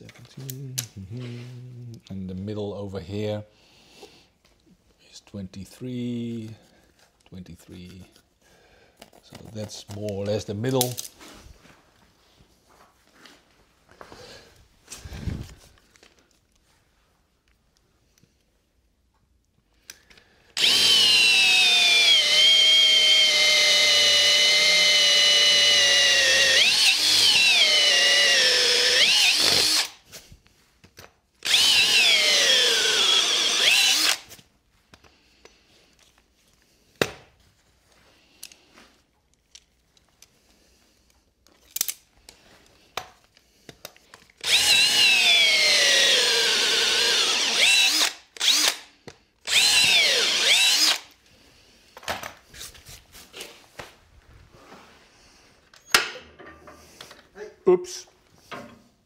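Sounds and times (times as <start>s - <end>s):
cordless drill boring into wood: 20.6s - 30.0s, 31.4s - 34.3s, 44.4s - 51.1s.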